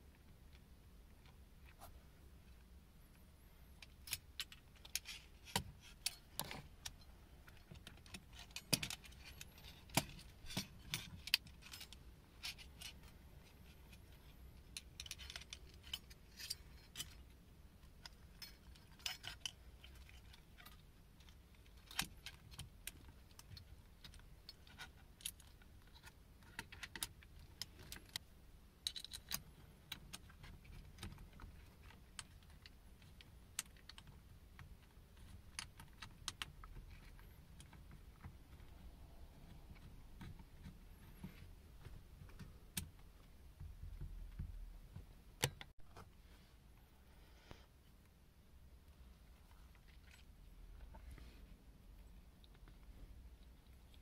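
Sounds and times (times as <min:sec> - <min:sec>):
small metallic clicks and clinks: 0:28.8 - 0:38.7.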